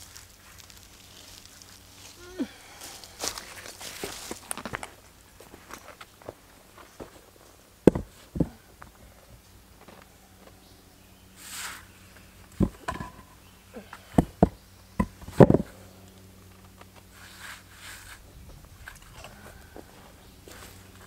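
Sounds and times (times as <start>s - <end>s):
scraping and rustling of soil and leaves: 0.0s - 14.2s, 15.3s - 21.0s
stone-on-stone clunks: 7.8s - 8.5s, 12.6s - 13.3s.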